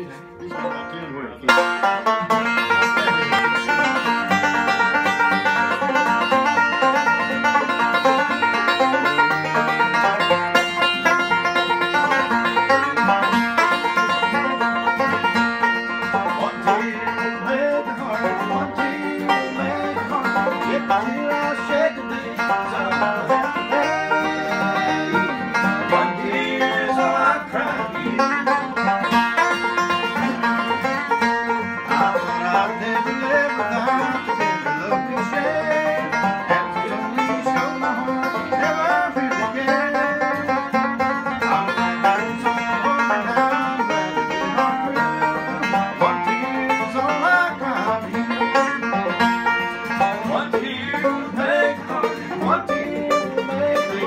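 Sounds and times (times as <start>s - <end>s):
banjos picking bluegrass: 0.0s - 54.0s
guitar: 0.0s - 54.0s.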